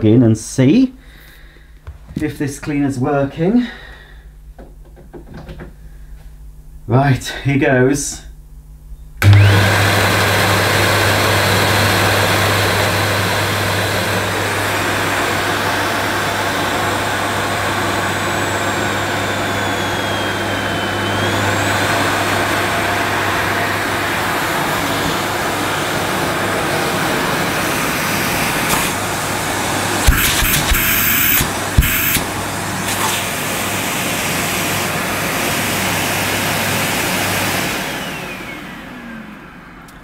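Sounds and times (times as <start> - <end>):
vacuum cleaner motor running: 9.2 - 40.0.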